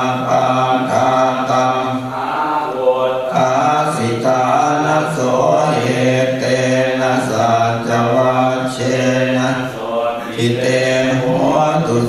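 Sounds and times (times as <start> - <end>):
group chanting in monotone: 0.0 - 12.0.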